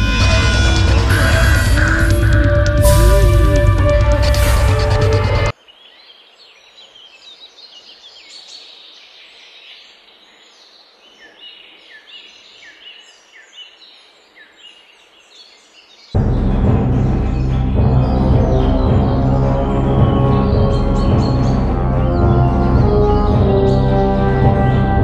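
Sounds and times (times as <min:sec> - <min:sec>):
loud film music: 0:00.0 - 0:05.6, 0:16.2 - 0:25.0
birds chirping and calling: 0:05.3 - 0:25.0.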